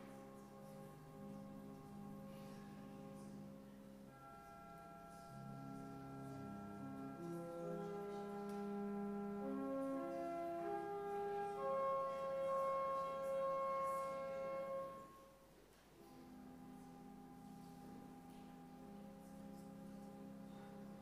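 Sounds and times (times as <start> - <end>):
church organ chords: 0.0 - 15.4.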